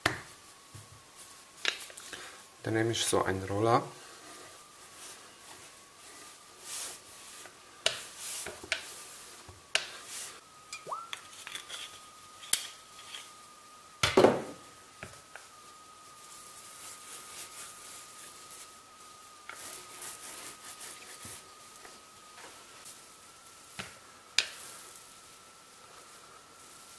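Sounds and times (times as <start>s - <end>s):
faint high tone: 10.7s - 11.2s.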